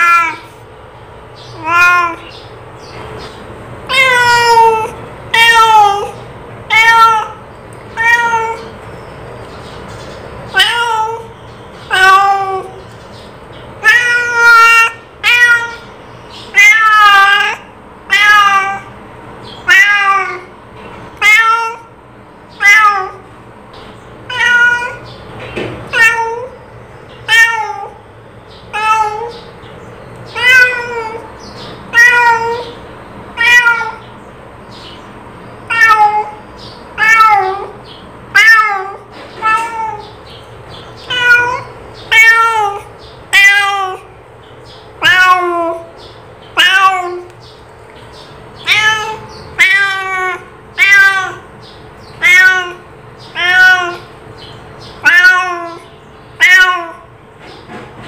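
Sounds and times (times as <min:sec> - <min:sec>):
cat meowing: 0:00.0 - 0:00.6, 0:01.5 - 0:02.4, 0:03.8 - 0:08.8, 0:10.5 - 0:12.8, 0:13.8 - 0:18.9, 0:19.6 - 0:23.3, 0:24.3 - 0:25.2, 0:25.9 - 0:26.6, 0:27.2 - 0:28.0, 0:28.7 - 0:29.5, 0:30.3 - 0:34.1, 0:35.6 - 0:40.4, 0:41.0 - 0:44.2, 0:45.0 - 0:47.4, 0:48.6 - 0:54.2, 0:54.9 - 0:57.1.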